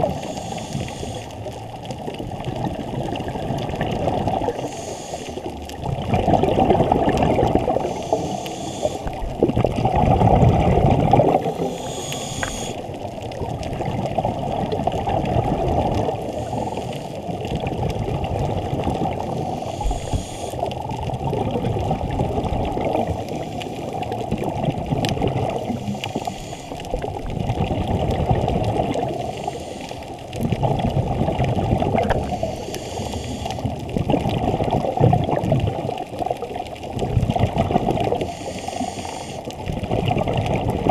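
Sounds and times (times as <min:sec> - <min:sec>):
faint hiss of inhalation: 0:00.0 - 0:01.5, 0:04.5 - 0:05.5, 0:07.8 - 0:09.2, 0:11.5 - 0:12.8, 0:16.3 - 0:17.2, 0:19.4 - 0:20.7, 0:25.7 - 0:26.9, 0:29.1 - 0:30.1, 0:32.2 - 0:33.7, 0:38.1 - 0:39.5
exhaled bubbles gurgling underwater: 0:00.0 - 0:40.9.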